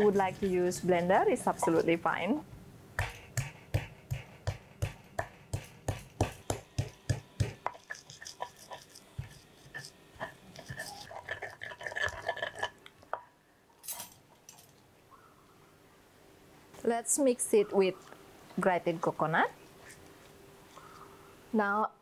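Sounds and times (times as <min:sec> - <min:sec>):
pestle scraping: 0:00.0 - 0:02.0, 0:03.0 - 0:12.4
stone pestle pounding: 0:03.0 - 0:09.4
pestle grinding in mortar: 0:03.0 - 0:12.6.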